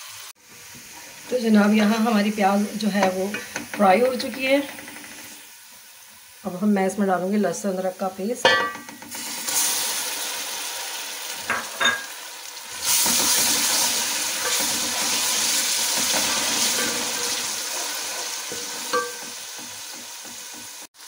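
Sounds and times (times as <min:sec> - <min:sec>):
paste sizzling in hot oil: 0:08.9 - 0:21.0
wooden spoon stirring in pot: 0:12.8 - 0:20.9.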